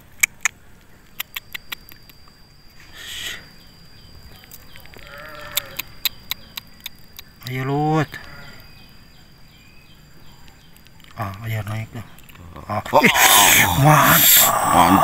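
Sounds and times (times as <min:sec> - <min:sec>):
sharp clicks and ticks: 0:00.0 - 0:02.3, 0:04.4 - 0:07.6
faint high steady tone: 0:00.0 - 0:15.0
faint animal call: 0:04.7 - 0:06.6.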